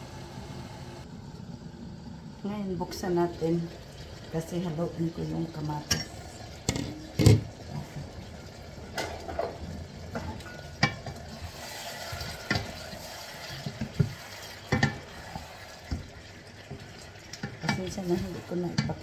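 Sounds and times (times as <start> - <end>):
food sizzling: 0.0 - 19.0
spatulas knocking and scraping wok: 5.8 - 8.1, 8.9 - 16.1, 16.7 - 19.0.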